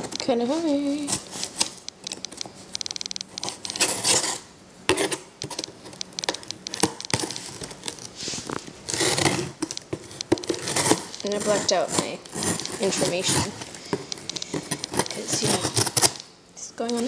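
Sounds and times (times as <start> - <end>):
cardboard rustling: 6.8 - 16.2.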